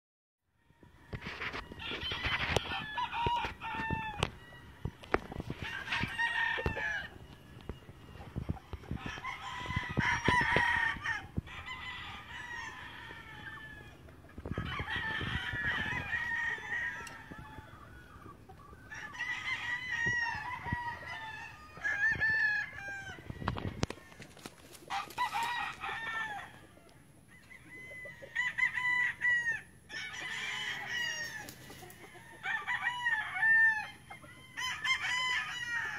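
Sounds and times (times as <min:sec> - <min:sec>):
roosters crowing: 0:00.5 - 0:35.9.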